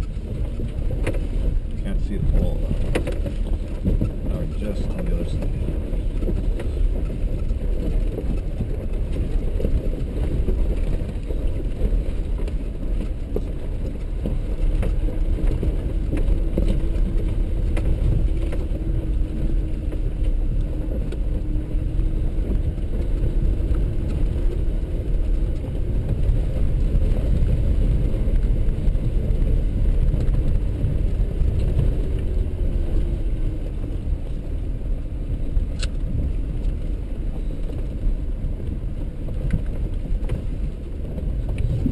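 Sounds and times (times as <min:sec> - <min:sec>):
tyres rumbling on rocky trail: 0:00.0 - 0:41.9
vehicle engine running: 0:00.0 - 0:41.9.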